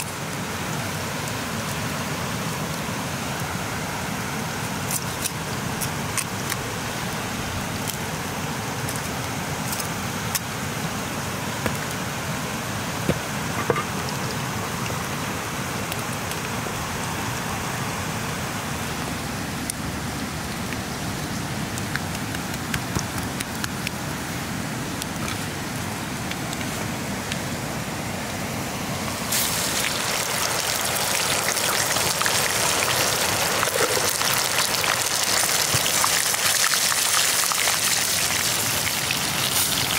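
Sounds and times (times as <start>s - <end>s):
chicken frying in hot oil: 4.4s - 10.5s, 29.1s - 39.9s
wood fire crackling: 15.7s - 17.1s, 20.4s - 24.2s, 29.0s - 39.9s.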